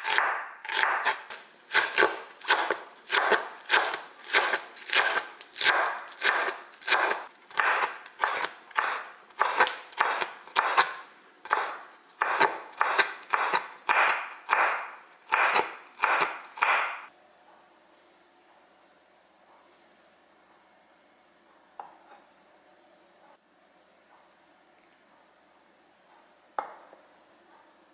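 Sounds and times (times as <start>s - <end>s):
knife chopping on wooden board: 0.0s - 17.1s.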